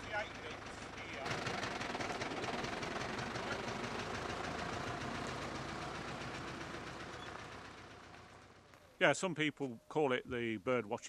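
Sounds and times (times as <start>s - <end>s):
tractor diesel engine chugging: 0.0s - 8.8s.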